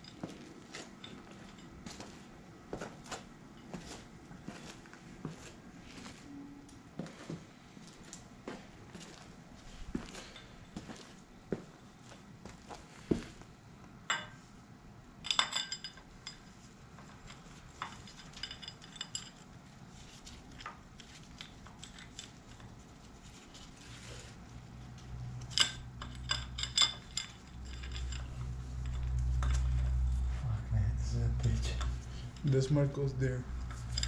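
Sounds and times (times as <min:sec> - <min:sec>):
metal parts clinking: 0:15.2 - 0:19.5, 0:25.4 - 0:29.8, 0:33.6 - 0:34.0.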